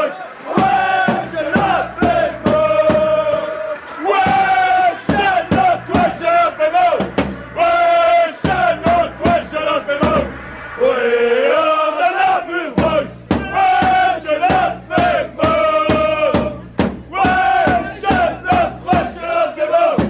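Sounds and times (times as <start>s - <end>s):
crowd chanting in unison: 0.0s - 20.0s
sharp beats: 0.5s - 19.1s.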